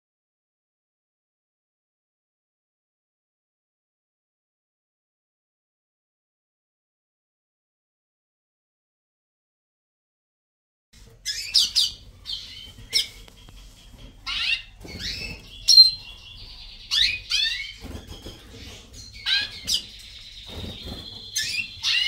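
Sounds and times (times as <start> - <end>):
finches chirping: 11.2 - 22.0
whistled bird notes: 14.3 - 22.0.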